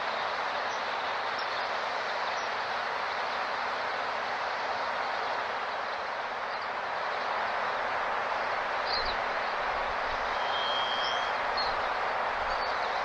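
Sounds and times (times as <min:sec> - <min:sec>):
thin whistled note: 0:10.3 - 0:11.3
short high bird chirps: 0:10.4 - 0:11.3.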